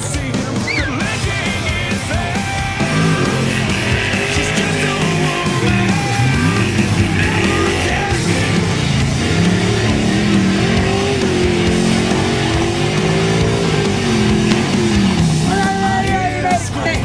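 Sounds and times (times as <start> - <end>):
buggy engine revving: 0.0 - 17.0
loud rock music with guitar: 0.0 - 17.0.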